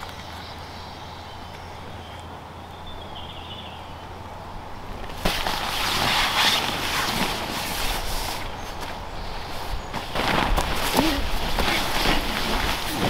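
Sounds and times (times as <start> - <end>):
tent fabric rustling: 5.1 - 13.0.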